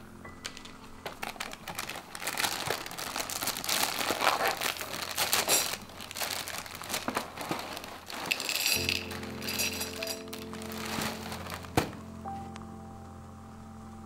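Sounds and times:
plastic bag crinkling and tearing: 0:00.4 - 0:12.3
cardboard box being opened: 0:01.2 - 0:08.4, 0:10.5 - 0:12.0.

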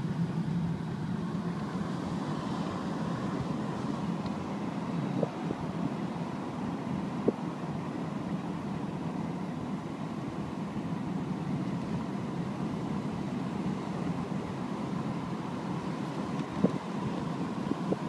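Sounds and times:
car road and engine noise: 0:00.0 - 0:18.0.

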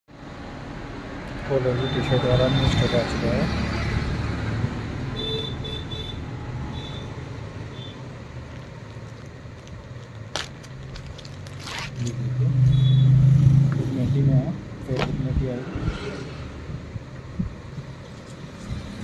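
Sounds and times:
road traffic hum: 0:00.1 - 0:19.0
plastic packaging crinkling: 0:08.5 - 0:12.2.

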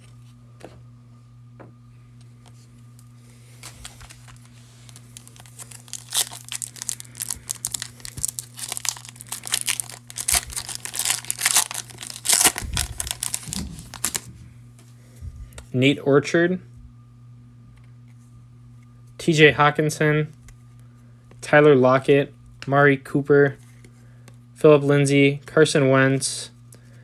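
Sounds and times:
foil wrapper crinkling: 0:03.5 - 0:14.3.

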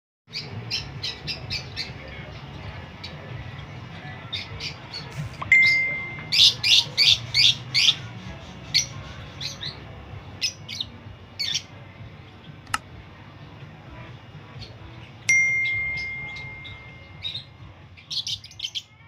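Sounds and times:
lovebirds calling: 0:00.3 - 0:12.8, 0:14.5 - 0:19.0.

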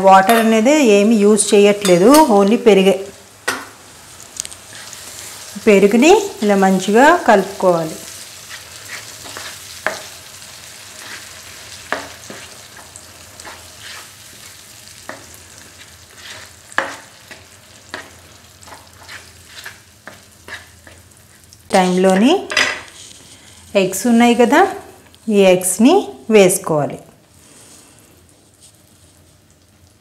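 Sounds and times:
low sizzle in frying pan: 0:00.1 - 0:30.0
spatula scraping pan: 0:07.3 - 0:10.2, 0:10.8 - 0:23.7.

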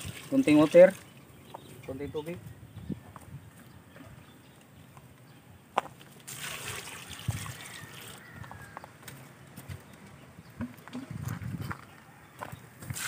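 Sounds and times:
water splashing into a metal pot: 0:06.2 - 0:08.2.

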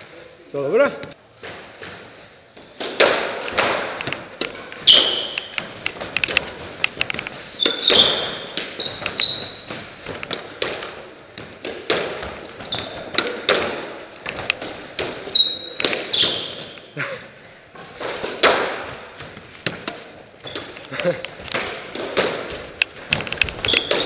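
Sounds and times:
ball smacking off walls: 0:02.7 - 0:16.4, 0:17.8 - 0:24.0
racket striking ball: 0:02.7 - 0:16.6, 0:17.8 - 0:20.7, 0:21.5 - 0:24.0
shoes squeaking on floor: 0:04.1 - 0:17.0, 0:17.8 - 0:24.0.

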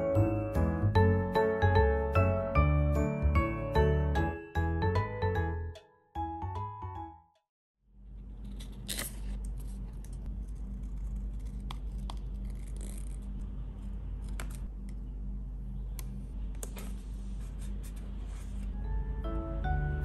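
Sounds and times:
low room hum: 0:07.9 - 0:20.0
scissors snipping paper: 0:08.6 - 0:13.4.

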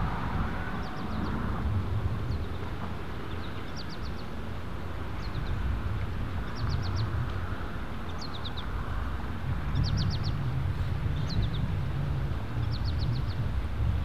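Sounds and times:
low rumble: 0:00.0 - 0:03.7
songbird singing: 0:00.0 - 0:08.9, 0:09.5 - 0:11.9, 0:12.5 - 0:13.7.

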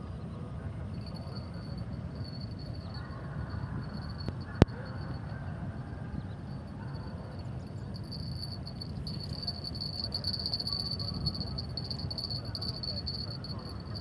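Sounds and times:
insects chirring: 0:06.4 - 0:14.0.

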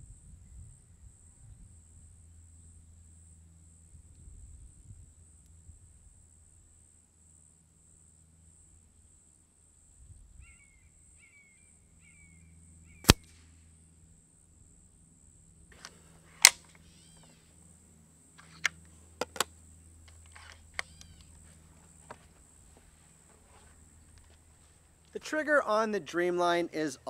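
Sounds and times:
air rifle shot cracks: 0:13.0 - 0:13.5
faint clicks: 0:18.4 - 0:21.4.

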